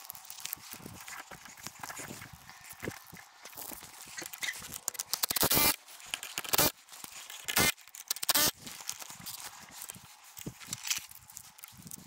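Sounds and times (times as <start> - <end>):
cordless drill bursts into wood: 7.5 - 8.5.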